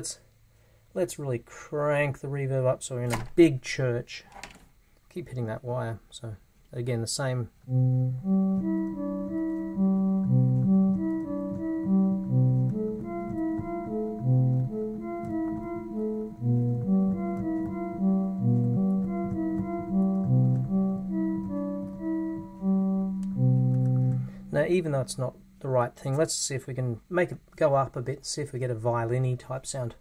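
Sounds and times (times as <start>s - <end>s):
cello-like synthesizer notes: 7.6s - 25.7s.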